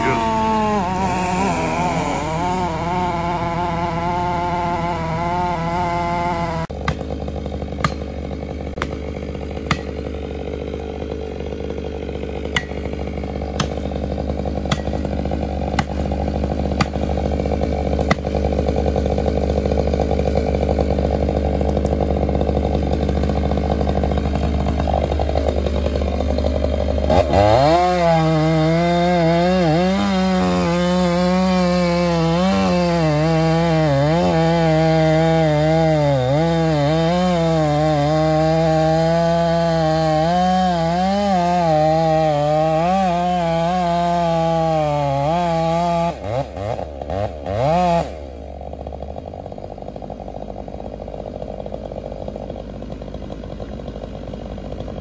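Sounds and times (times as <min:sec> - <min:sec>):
wavering engine note: 0:00.0 - 0:08.9
chainsaw cutting tree: 0:00.0 - 0:55.0.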